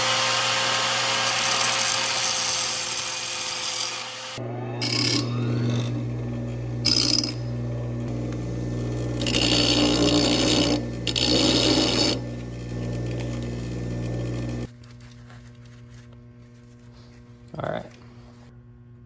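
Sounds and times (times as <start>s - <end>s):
bench grinder humming: 0.0s - 14.7s
metal grinding against wheel: 4.8s - 7.6s, 8.9s - 14.7s.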